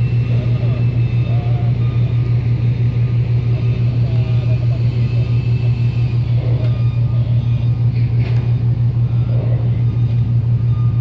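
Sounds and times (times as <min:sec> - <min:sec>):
ship engines humming: 0:00.0 - 0:11.0.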